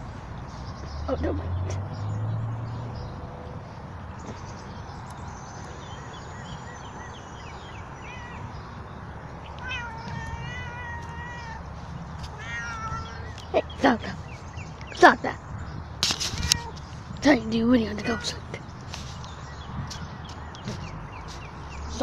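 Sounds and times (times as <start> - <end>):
cat meowing: 8.0 - 8.5, 9.6 - 11.7, 12.3 - 13.4, 16.4 - 16.8, 18.0 - 18.5.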